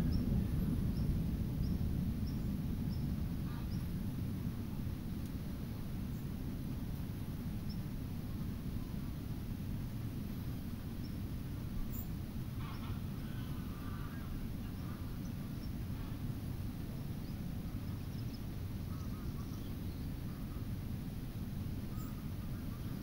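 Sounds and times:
low rumble: 0:00.0 - 0:16.0
bird calls: 0:11.9 - 0:16.1, 0:17.2 - 0:20.7, 0:21.9 - 0:23.0.

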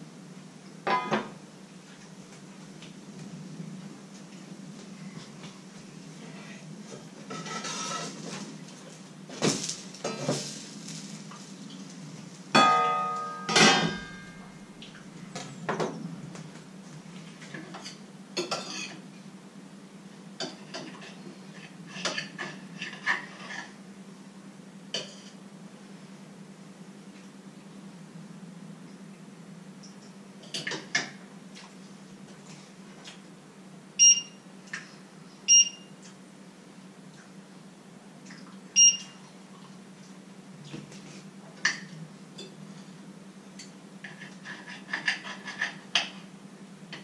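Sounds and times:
spoon scraping in a pot: 0:07.3 - 0:08.3, 0:44.0 - 0:45.9
loud ringing metal clangs: 0:12.6 - 0:14.6.

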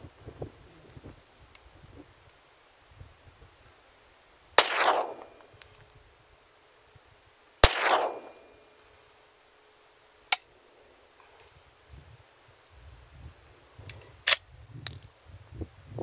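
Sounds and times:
pistol shots echoing: 0:04.6 - 0:05.4, 0:07.6 - 0:08.6
sharp crack: 0:04.6 - 0:05.5, 0:07.6 - 0:08.6.

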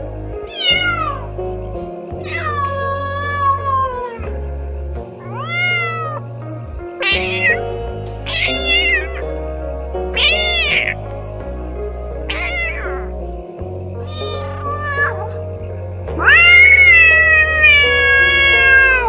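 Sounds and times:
background music: 0:00.0 - 0:19.0
cat meowing: 0:00.5 - 0:01.3, 0:02.2 - 0:04.3, 0:05.2 - 0:06.2, 0:07.0 - 0:07.6, 0:08.3 - 0:09.2, 0:10.2 - 0:11.0, 0:12.3 - 0:12.9, 0:14.0 - 0:15.3, 0:16.2 - 0:19.0.

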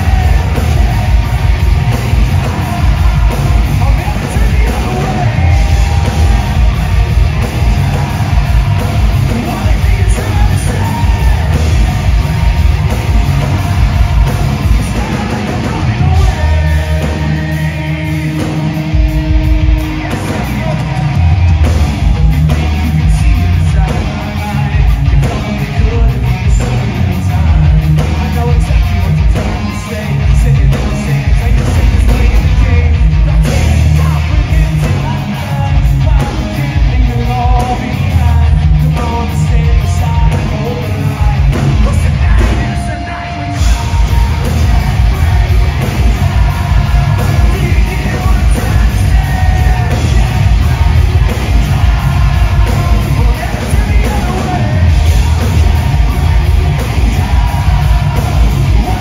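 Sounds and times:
distorted electric guitars: 0:00.0 - 0:59.0
heavy bass: 0:00.0 - 0:59.0
pounding drums: 0:00.0 - 0:59.0
shouted half-sung vocals: 0:00.0 - 0:59.0.

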